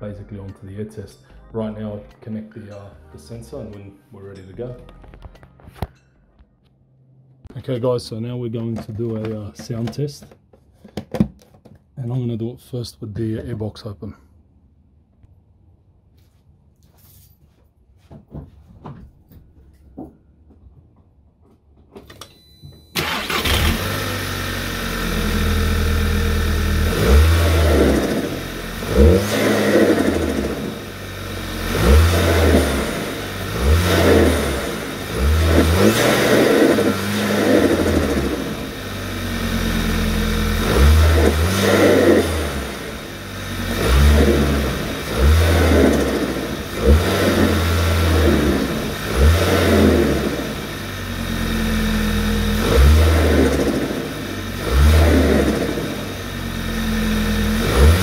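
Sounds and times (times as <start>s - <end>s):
car engine revving: 23.0s - 58.0s.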